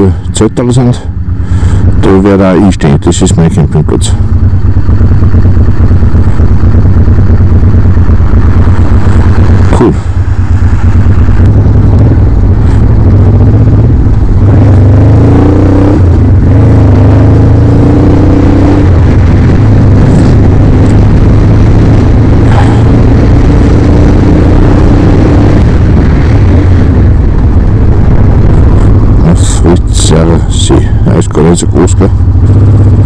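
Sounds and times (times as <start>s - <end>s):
motorcycle engine revving: 0.0s - 33.0s.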